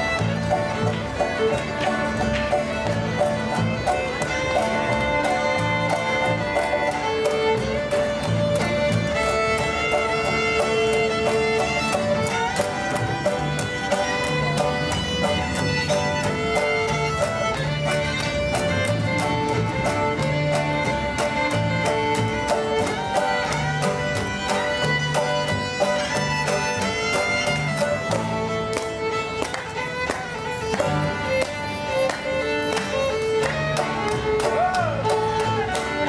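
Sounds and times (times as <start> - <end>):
bluegrass band playing: 0.0 - 36.0
fiddle melody: 0.0 - 36.0.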